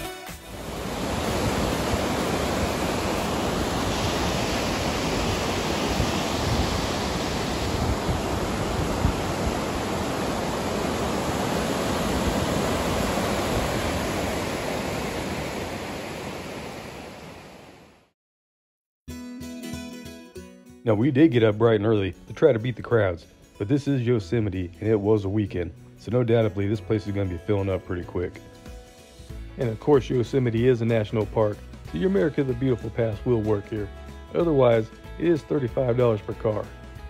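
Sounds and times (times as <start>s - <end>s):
river rapids rushing: 0.4s - 17.4s.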